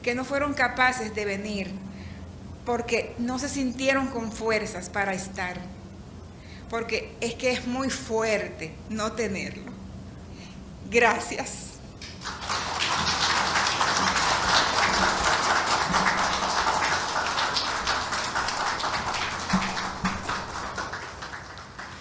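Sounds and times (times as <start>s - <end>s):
audience applauding: 12.0s - 22.0s.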